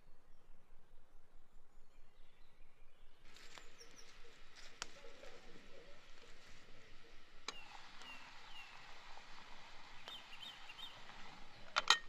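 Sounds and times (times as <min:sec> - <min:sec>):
birds chirping: 0:00.0 - 0:12.0
bird trilling: 0:03.8 - 0:11.8.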